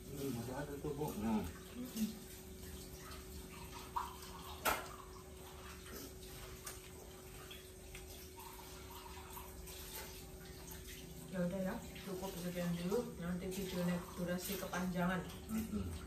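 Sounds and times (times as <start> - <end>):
low room hum: 0.0 - 16.0
eating by hand from plates: 13.6 - 16.0.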